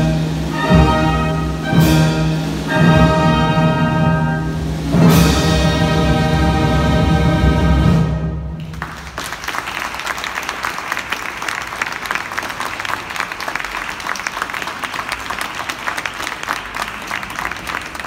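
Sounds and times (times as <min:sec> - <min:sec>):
wind band chord: 0:00.0 - 0:08.4
audience applauding: 0:08.6 - 0:18.0.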